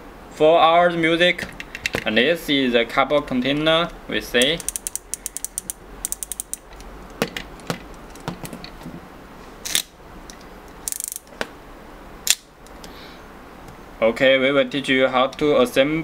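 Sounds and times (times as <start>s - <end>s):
ratcheting clicks of cord reel: 4.4s - 6.8s, 10.9s - 11.3s.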